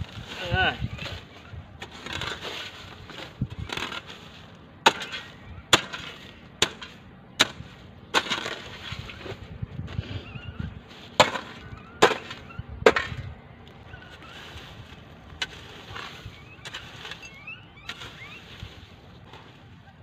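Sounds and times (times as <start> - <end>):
brush crackling: 0.0 - 9.6, 13.6 - 20.0
hoe scraping through twigs and dirt: 0.0 - 20.0
sharp hoe strikes: 4.8 - 8.7, 11.2 - 13.2.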